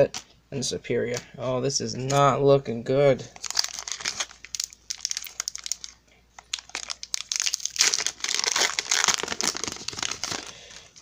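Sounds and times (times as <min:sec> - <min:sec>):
foil wrapper tearing and crinkling: 0:03.4 - 0:10.9.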